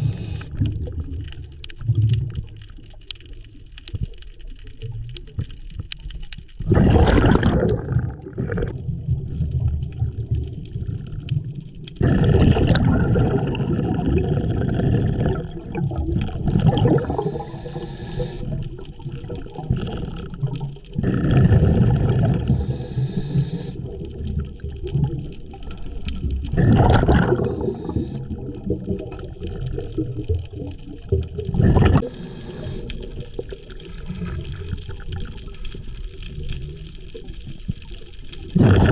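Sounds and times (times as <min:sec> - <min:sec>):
regulator hissing: 0:00.0 - 0:00.5, 0:17.1 - 0:18.5, 0:22.5 - 0:23.8, 0:32.0 - 0:33.0
exhaled bubbles gurgling: 0:00.0 - 0:38.9.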